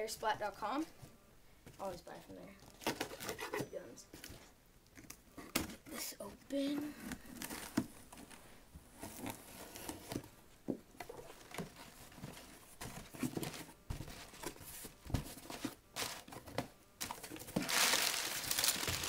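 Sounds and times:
cardboard flaps rustling: 0:11.0 - 0:19.0
packing tape being slit: 0:17.6 - 0:19.0.

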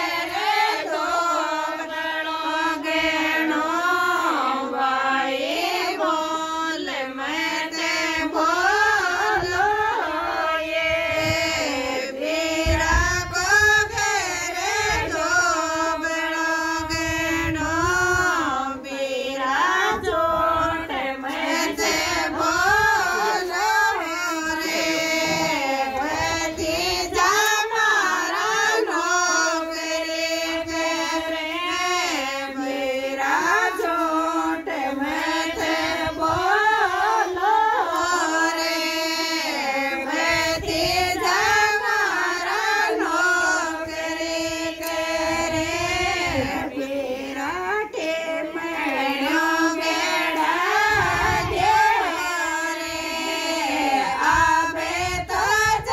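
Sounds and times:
women singing folk song: 0:00.0 - 0:55.9.

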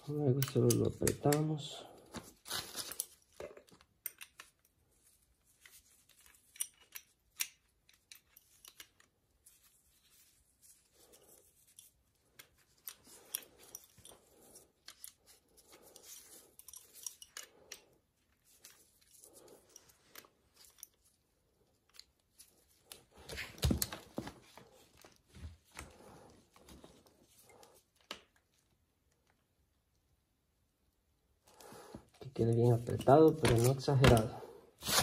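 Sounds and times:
light rustling of gloved hands: 0:00.0 - 0:30.0, 0:31.4 - 0:35.0
small metal clicks and ticks: 0:03.0 - 0:04.7.

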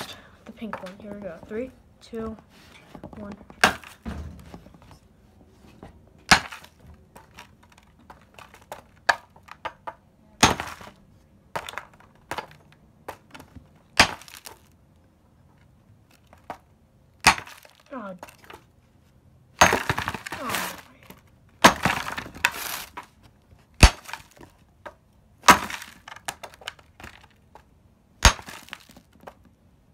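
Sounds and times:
hammer striking stone: 0:06.3 - 0:06.6, 0:17.2 - 0:17.6, 0:28.2 - 0:28.8.

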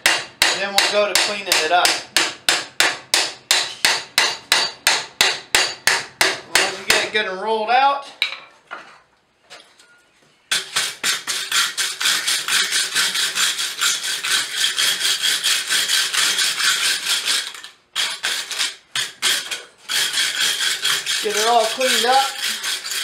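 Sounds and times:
wire brush scraping metal: 0:10.6 - 0:23.0.

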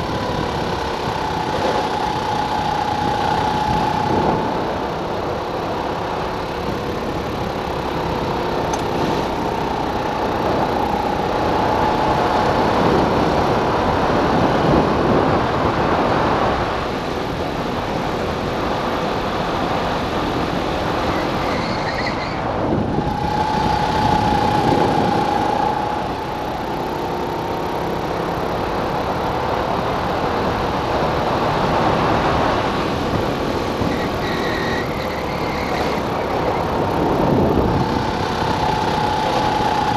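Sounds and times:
go-kart engine revving: 0:00.0 - 0:39.9
wind and road noise: 0:00.0 - 0:39.9.

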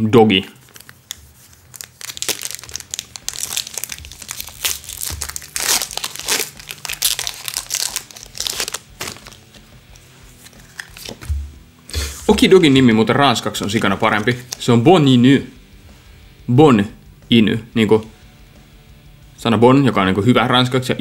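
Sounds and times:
plastic packaging crinkling: 0:00.6 - 0:09.6, 0:10.3 - 0:11.3.

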